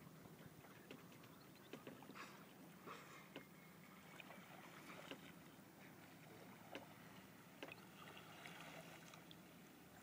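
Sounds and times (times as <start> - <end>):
water lapping against kayak hull: 0.1 - 10.0
small splashes: 6.0 - 9.5.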